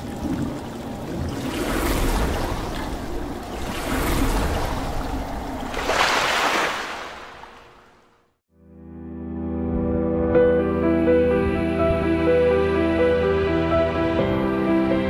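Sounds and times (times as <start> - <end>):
rushing splashing water: 0.0 - 8.3.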